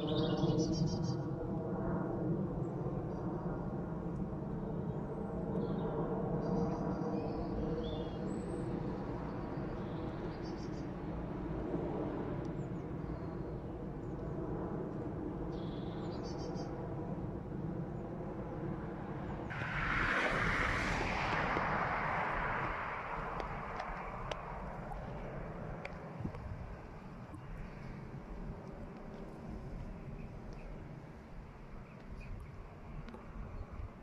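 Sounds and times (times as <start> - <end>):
distant jet engines rumbling: 0.0 - 34.0
rush of noise: 19.5 - 26.8.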